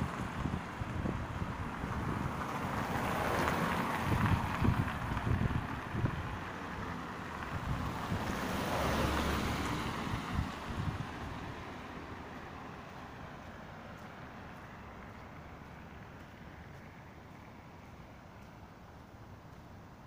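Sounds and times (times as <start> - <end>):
wind buffeting microphone: 0.0 - 11.8.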